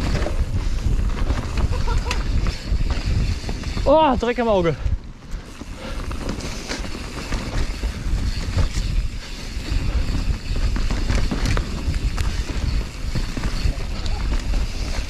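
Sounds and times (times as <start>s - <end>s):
bike rattling over bumps: 0.0s - 15.0s
wind rumbling on microphone: 0.0s - 15.0s
tyres rolling over dirt and leaves: 5.4s - 15.0s.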